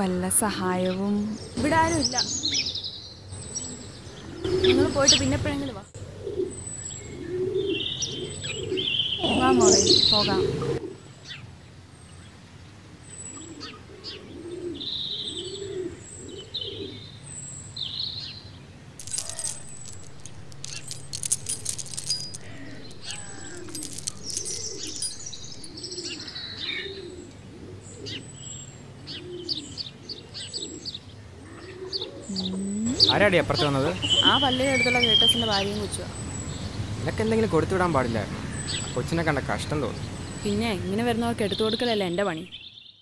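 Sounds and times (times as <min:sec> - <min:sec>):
small birds chirping: 0:00.0 - 0:12.4, 0:13.0 - 0:43.0
dove cooing: 0:06.0 - 0:11.0, 0:13.4 - 0:17.0, 0:19.0 - 0:28.3
metal chain clinking: 0:19.0 - 0:25.9.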